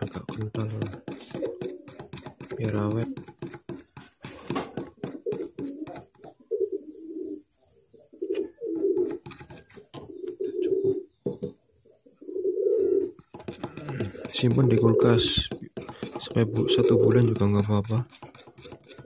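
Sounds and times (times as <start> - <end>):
metal spoon stirring in plastic bowl: 0.0 - 6.4, 8.8 - 10.4, 13.2 - 19.0
bird cooing: 1.3 - 2.0, 5.1 - 9.2, 10.1 - 11.1, 12.0 - 17.4.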